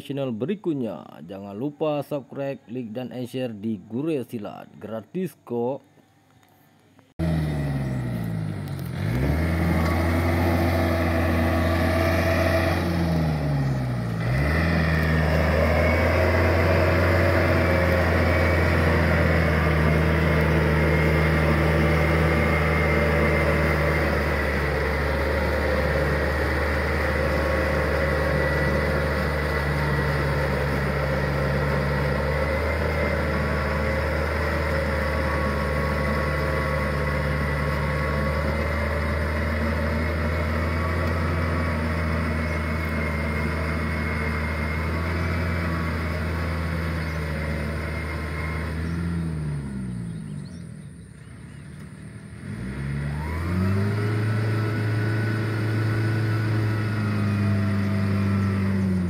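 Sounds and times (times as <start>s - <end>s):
tractor diesel engine running: 7.2s - 59.0s.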